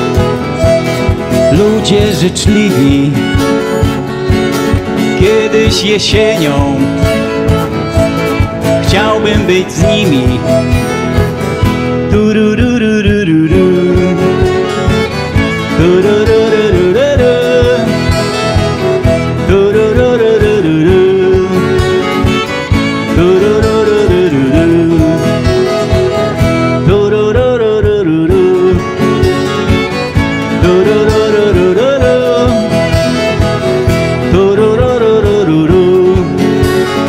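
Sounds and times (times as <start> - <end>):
violins playing melody: 0.0 - 12.1, 13.6 - 27.0, 28.6 - 34.4
acoustic guitars strumming: 0.0 - 37.0.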